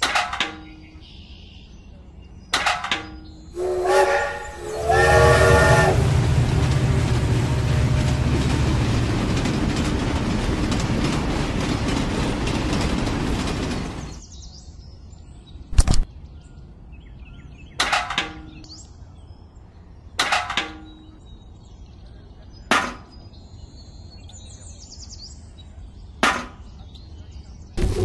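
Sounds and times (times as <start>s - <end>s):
faint bird chirps: 20.8s - 27.8s.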